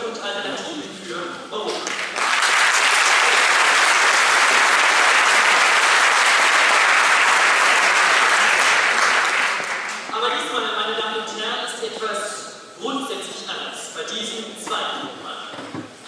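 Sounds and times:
audience applauding: 1.8s - 10.1s.

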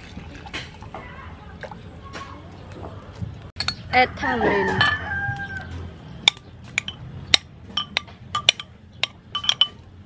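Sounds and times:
metal spoon clinking on clay pot: 3.6s - 4.0s, 4.6s - 9.9s.

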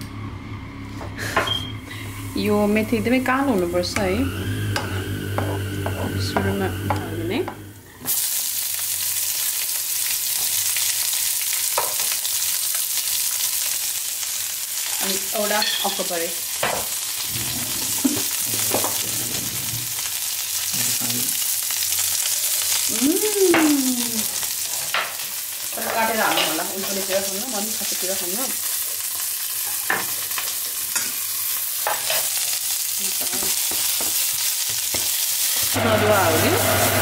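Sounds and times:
food sizzling in hot oil: 1.8s - 37.0s
spoon stirring and knocking pan: 3.8s - 7.7s, 11.7s - 12.2s, 15.5s - 17.0s, 18.0s - 19.1s, 24.8s - 27.5s, 31.8s - 32.4s, 33.2s - 35.7s.

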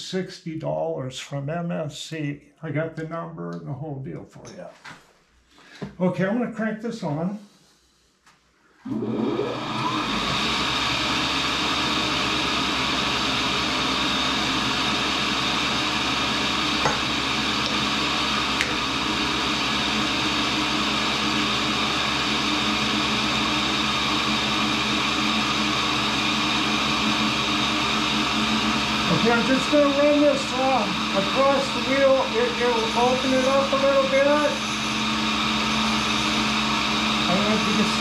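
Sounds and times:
grinder motor spinning up: 8.8s - 38.0s.

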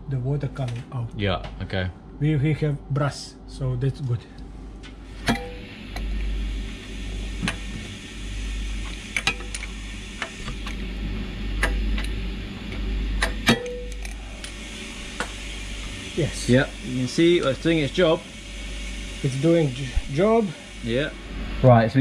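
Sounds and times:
ringing metal clank: 5.3s - 5.6s, 13.5s - 14.0s.

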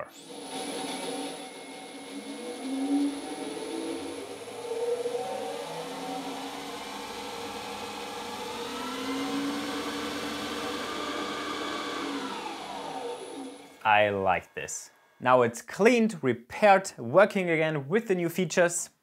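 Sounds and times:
drill press motor whirring: 0.0s - 13.8s.

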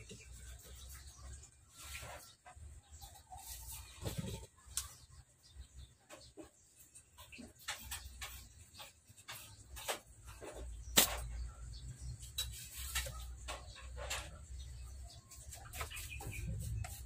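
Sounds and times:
clicks and taps of slingshot work: 7.6s - 11.4s.

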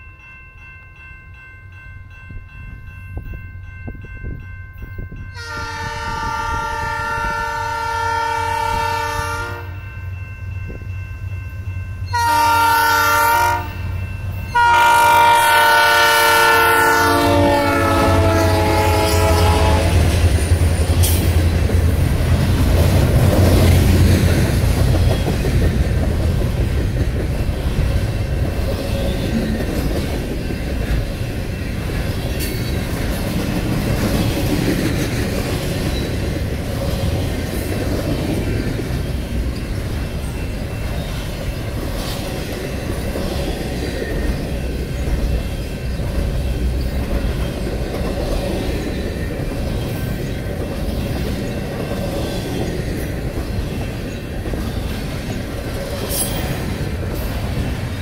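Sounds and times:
diesel locomotives rumbling by: 0.0s - 58.0s
locomotive air horn blasts: 5.4s - 9.8s, 12.1s - 13.8s, 14.5s - 20.1s
train wheel clatter: 17.9s - 58.0s.

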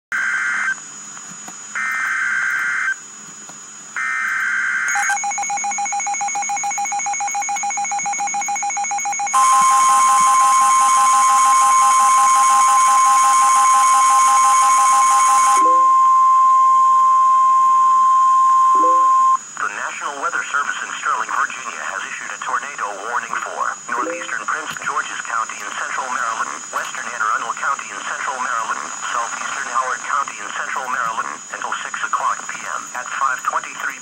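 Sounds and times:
screeching data tones: 4.0s - 19.6s, 23.8s - 24.8s
long steady attention tone: 4.0s - 32.4s.

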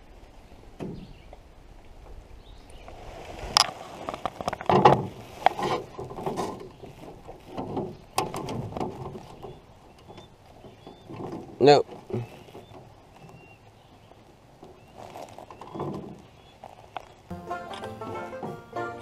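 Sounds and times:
knocks and clatter in metal canoe: 0.2s - 1.4s, 3.2s - 16.6s.

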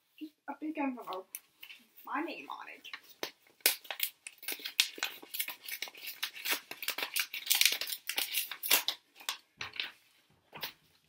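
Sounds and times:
paper envelope crinkling: 2.9s - 10.0s.

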